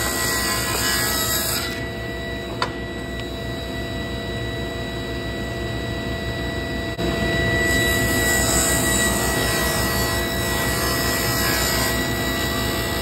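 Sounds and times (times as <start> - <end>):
table saw running: 0.0 - 1.9, 7.4 - 13.0.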